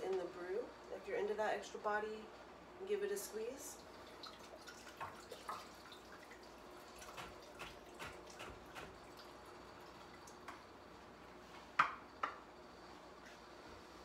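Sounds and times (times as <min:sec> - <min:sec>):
liquid dripping into liquid: 0:03.8 - 0:10.7.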